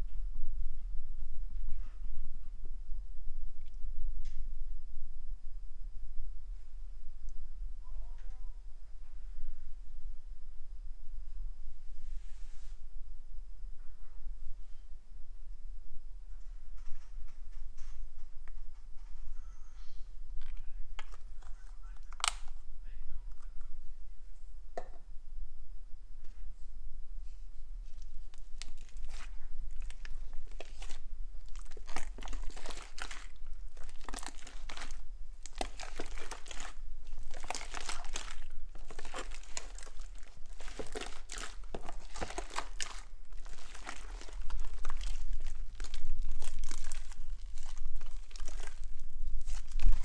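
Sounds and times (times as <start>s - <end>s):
slime squelching and crackling: 21.0s - 22.6s, 27.8s - 50.0s.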